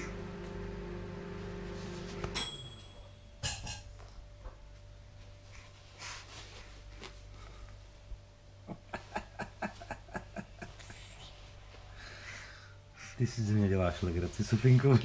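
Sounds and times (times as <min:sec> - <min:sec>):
faint rustles: 0:05.1 - 0:08.3.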